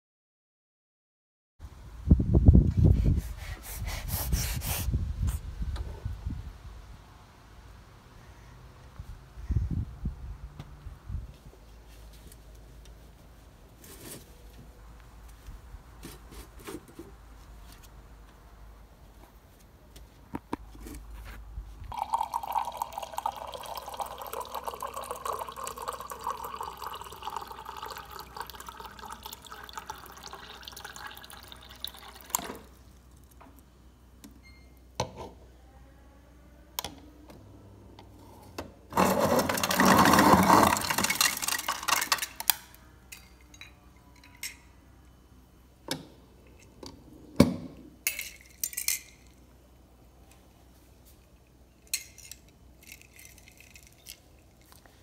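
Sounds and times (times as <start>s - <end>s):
ice cubes rattling into a mug: 21.9s - 32.4s, 39.0s - 42.6s, 51.9s - 54.2s
utensil clinking in a mug: 21.9s - 32.4s
water pouring into a mug: 21.9s - 32.8s, 39.0s - 42.1s.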